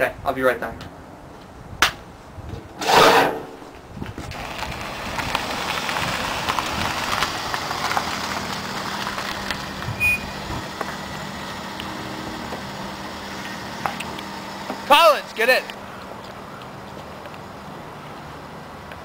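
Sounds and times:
car traffic: 0:00.8 - 0:19.0
low engine hum: 0:03.7 - 0:14.9.

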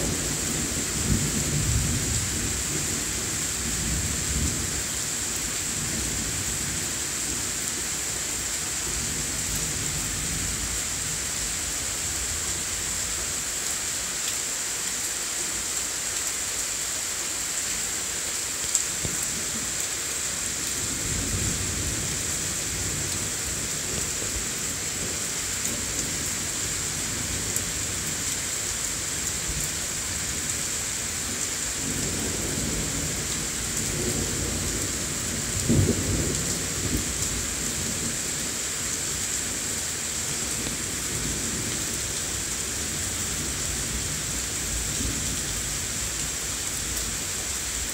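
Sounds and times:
heavy rain falling: 0:00.0 - 0:47.9.

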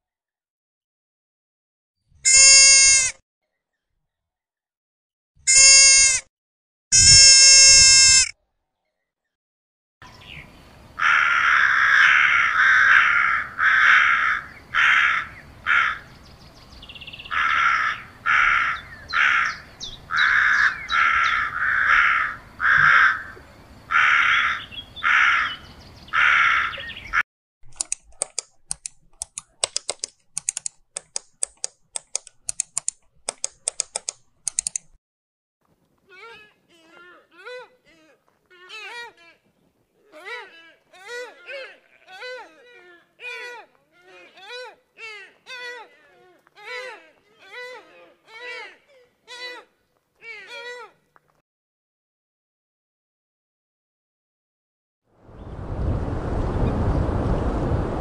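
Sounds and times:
deer bleating calls: 0:02.2 - 0:03.1, 0:05.5 - 0:06.2, 0:06.9 - 0:08.3, 0:36.1 - 0:51.0
hawk harsh cries: 0:02.3 - 0:03.2, 0:05.5 - 0:06.2, 0:06.9 - 0:08.3
faint clicking: 0:27.7 - 0:35.0.

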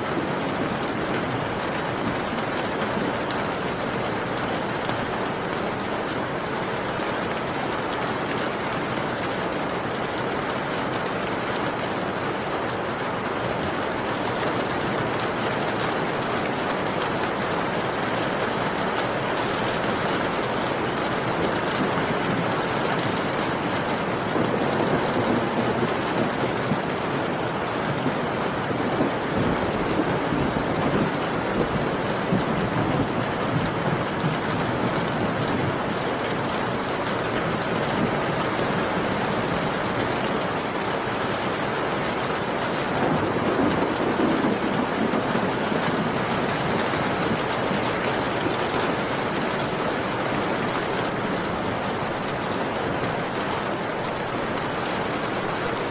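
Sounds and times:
steady rain: 0:00.0 - 0:55.9
low thunder rumbles: 0:42.9 - 0:48.5.

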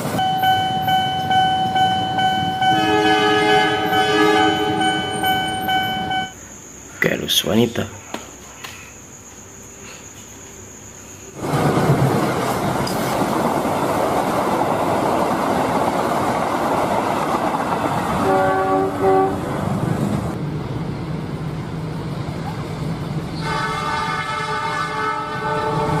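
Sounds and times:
train coaches on rails: 0:00.0 - 0:26.0
train horn blasts: 0:00.2 - 0:06.3, 0:18.2 - 0:19.5, 0:23.4 - 0:26.0.

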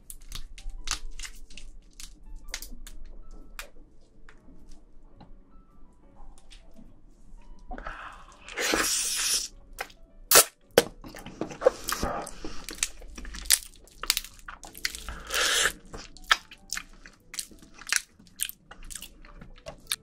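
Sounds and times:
crab shell cracking and crunching: 0:00.0 - 0:03.8, 0:11.5 - 0:20.0
wet squishing of meat: 0:11.6 - 0:20.0
hissing: 0:15.1 - 0:15.9.

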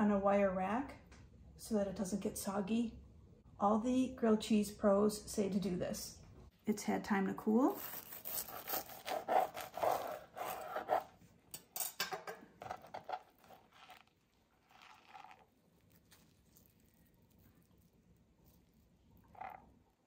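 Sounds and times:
knife sawing through crunchy toast: 0:07.7 - 0:11.2
crunchy crust crackles: 0:12.8 - 0:19.8.

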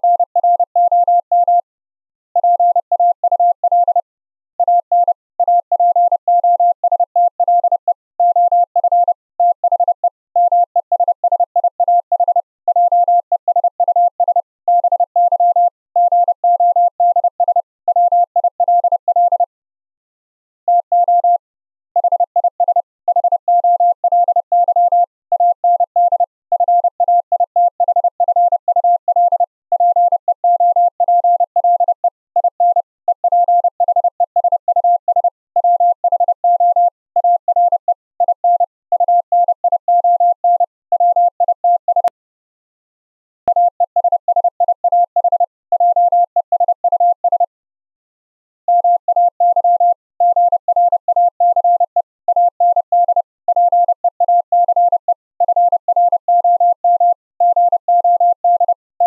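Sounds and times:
morse code tone: 0:02.4 - 0:19.5, 0:43.5 - 0:47.6, 0:48.7 - 0:59.0.

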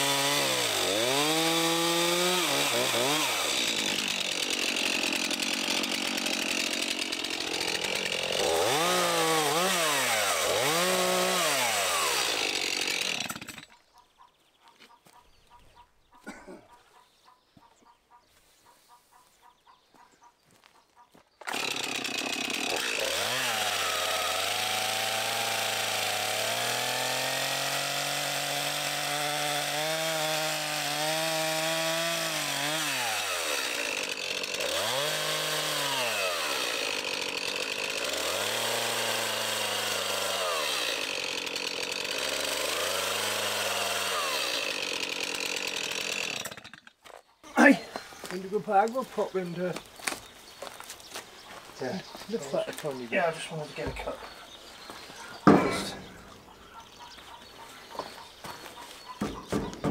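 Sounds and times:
chainsaw revving and cutting log: 0:00.0 - 0:13.8, 0:21.4 - 0:47.0, 0:47.6 - 0:59.9.

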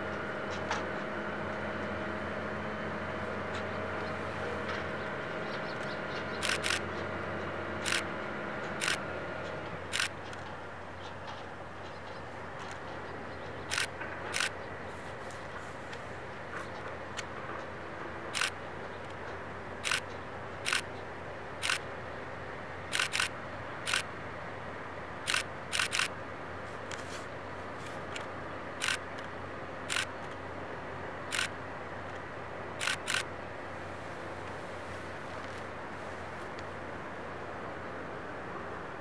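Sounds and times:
steady background drone: 0:00.0 - 0:39.0
camera shutters clicking: 0:06.4 - 0:06.8, 0:07.8 - 0:08.1, 0:08.8 - 0:09.0, 0:13.7 - 0:14.5, 0:18.4 - 0:18.6, 0:19.8 - 0:20.1, 0:20.7 - 0:20.9, 0:21.6 - 0:21.8, 0:22.9 - 0:23.3, 0:23.9 - 0:24.1, 0:25.3 - 0:26.1, 0:28.8 - 0:29.3, 0:29.9 - 0:30.1, 0:31.3 - 0:31.5, 0:32.8 - 0:33.3.

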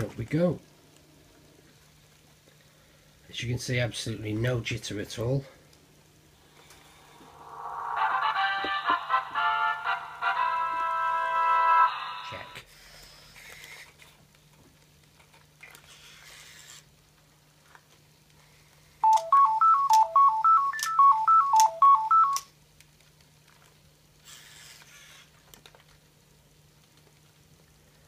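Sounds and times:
robot dog electronic beeping tune: 0:19.0 - 0:22.4.

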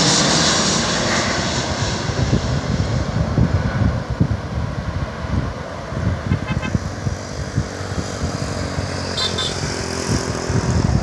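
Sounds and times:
road traffic hum: 0:00.0 - 0:11.0
wind buffeting microphone: 0:00.8 - 0:11.0
vehicle horn toot: 0:06.3 - 0:06.8, 0:09.1 - 0:09.7.

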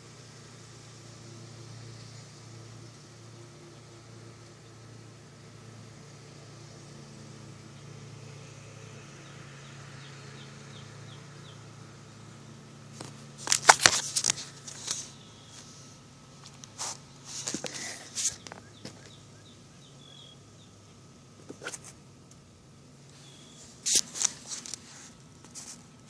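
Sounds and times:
camera handling noise: 0:13.0 - 0:15.1, 0:23.8 - 0:24.8.

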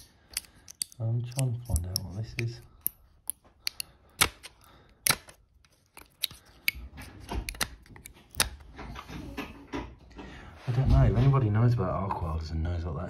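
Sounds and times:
screwdriver scraping metal: 0:00.0 - 0:05.2.

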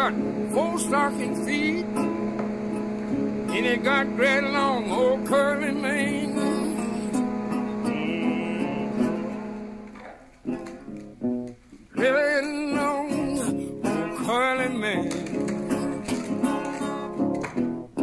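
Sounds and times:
person singing: 0:00.0 - 0:02.3, 0:03.5 - 0:09.8, 0:12.0 - 0:17.2
acoustic guitar chords: 0:00.0 - 0:18.0.

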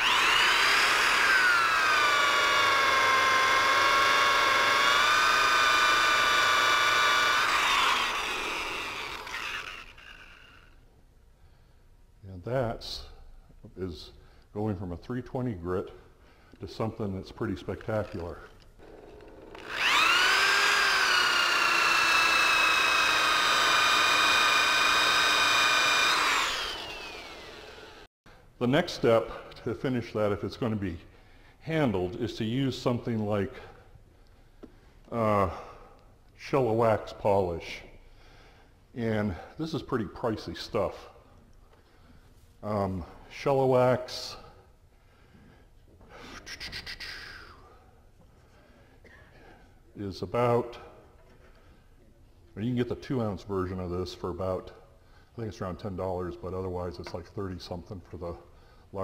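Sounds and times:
electric drill whining: 0:00.0 - 0:10.8, 0:18.8 - 0:28.1
motor winding down: 0:00.0 - 0:10.8, 0:18.8 - 0:28.1.

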